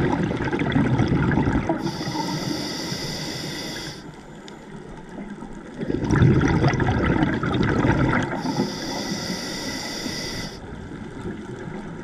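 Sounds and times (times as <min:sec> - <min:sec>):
underwater exhaled bubbles rumble: 0:00.0 - 0:12.0
regulator inhale hiss: 0:01.8 - 0:04.2, 0:08.4 - 0:10.6.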